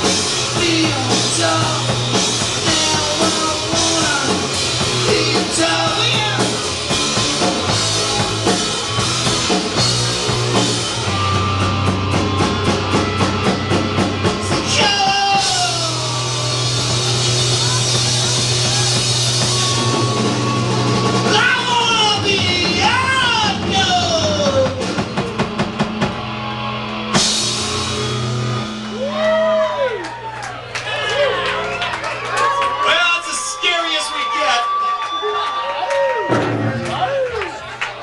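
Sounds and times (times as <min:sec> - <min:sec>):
fast drum roll: 0:00.0 - 0:26.3
punk rock band playing: 0:00.0 - 0:38.0.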